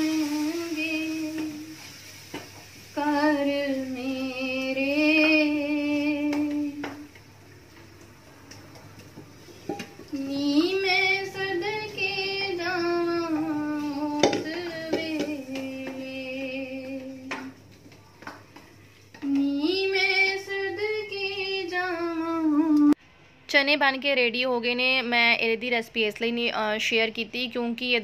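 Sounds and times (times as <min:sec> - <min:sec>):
spatula knocking on pan: 0:13.3 - 0:16.2.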